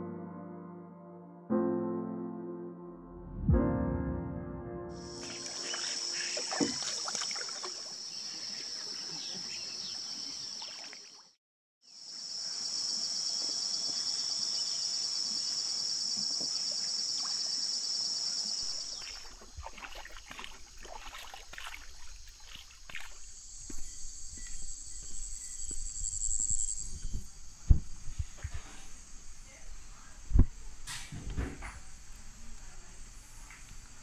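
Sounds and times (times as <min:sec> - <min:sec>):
low rumble: 0:03.2 - 0:04.8
rainforest insects droning: 0:05.0 - 0:11.2, 0:11.8 - 0:34.0
canoe paddle knocks: 0:05.2 - 0:07.8.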